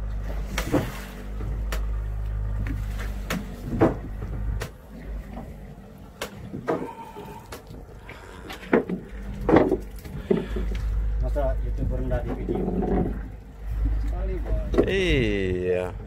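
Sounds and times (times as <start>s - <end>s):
boat engine hum: 0.0s - 16.0s
knocks and clatters on deck: 8.7s - 10.4s.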